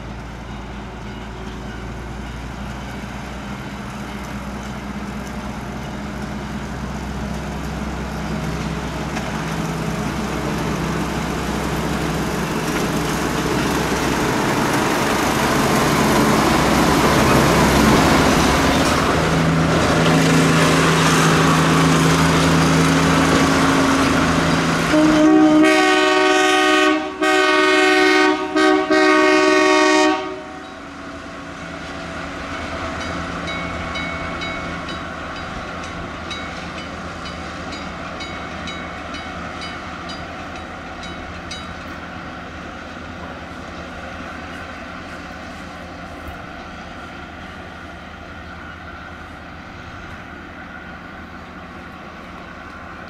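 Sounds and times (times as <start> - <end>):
diesel locomotive running: 0.0 - 53.0
locomotive horn blasts: 24.9 - 30.8.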